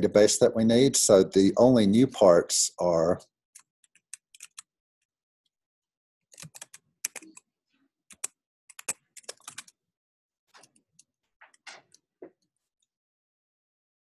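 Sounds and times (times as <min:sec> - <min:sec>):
keyboard typing clicks: 0:06.4 - 0:07.4, 0:08.1 - 0:09.7.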